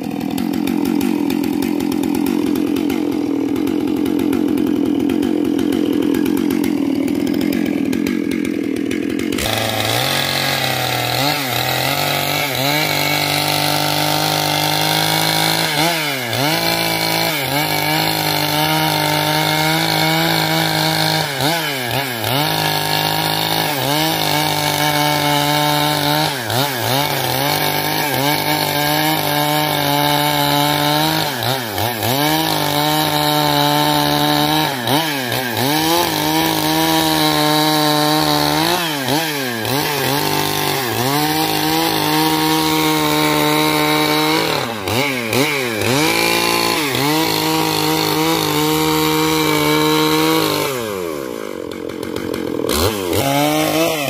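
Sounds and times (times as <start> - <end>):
chainsaw cutting log: 0.0 - 54.0.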